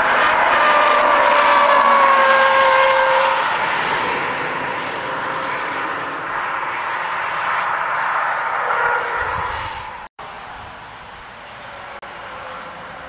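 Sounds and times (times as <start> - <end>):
car passing at speed: 0.0 - 10.1.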